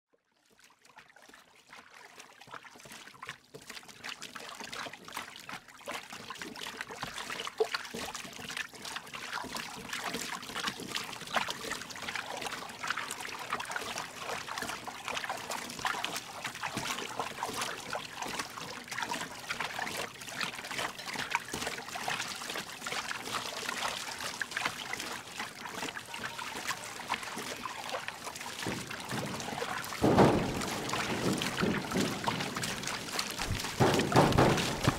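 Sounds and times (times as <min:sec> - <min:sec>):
water splashing and trickling: 0:00.2 - 0:34.9.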